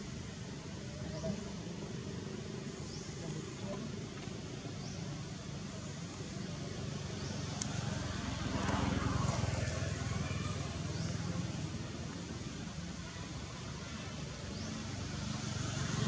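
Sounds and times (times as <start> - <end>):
vehicle passing: 6.0 - 12.6.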